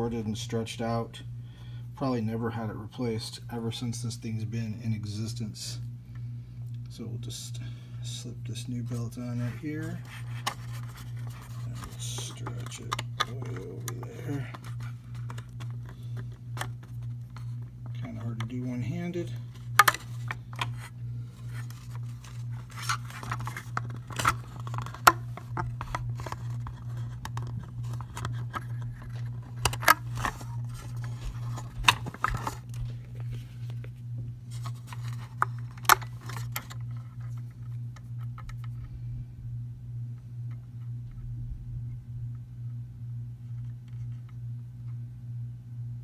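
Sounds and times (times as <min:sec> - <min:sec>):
low hum: 0:00.0 - 0:46.0
clicks and scrapes of plastic: 0:09.4 - 0:18.6, 0:19.5 - 0:33.9, 0:34.5 - 0:38.8.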